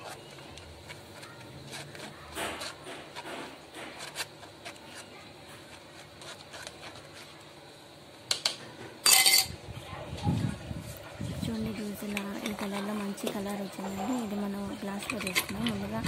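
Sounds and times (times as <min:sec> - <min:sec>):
spoon scraping in mesh strainer: 0:00.0 - 0:07.4, 0:11.7 - 0:16.0
utensils clattering: 0:09.0 - 0:09.6, 0:11.6 - 0:16.0.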